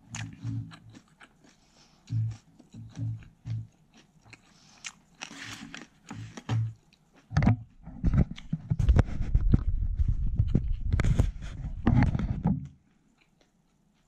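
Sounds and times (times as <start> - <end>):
close-miked chewing with crunching: 0.0 - 7.4, 8.3 - 11.5, 12.1 - 14.0
crackling and knocking: 6.2 - 12.7.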